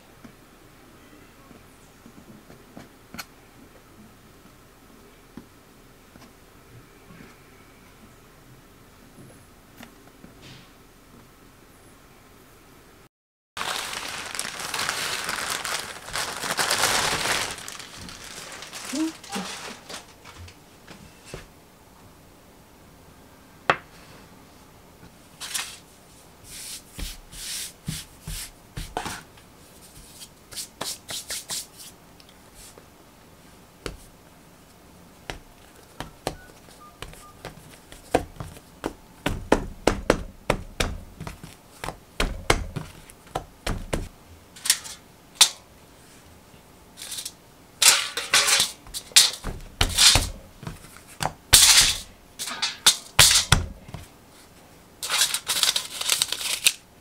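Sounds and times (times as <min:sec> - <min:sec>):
hands patting and slapping dough: 0:26.6 - 0:29.3, 0:29.9 - 0:32.0, 0:33.8 - 0:34.2, 0:35.2 - 0:44.2, 0:48.9 - 0:51.5.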